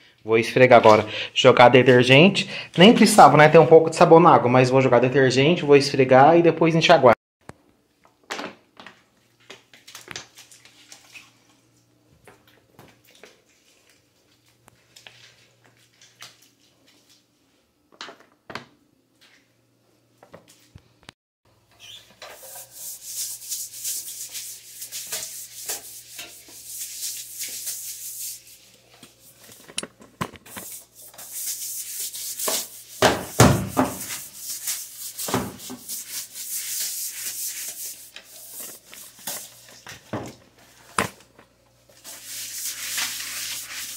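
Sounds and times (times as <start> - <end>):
brush scrubbing tiled floor: 21.8 - 29.6, 30.4 - 40.9, 41.9 - 43.9.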